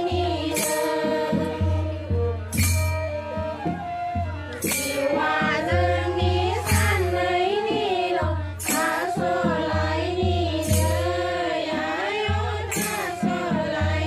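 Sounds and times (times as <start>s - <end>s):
men and women singing a prayer song: 0.0s - 2.6s, 4.7s - 14.0s
crisp percussive strike: 2.5s - 3.8s, 10.6s - 11.2s.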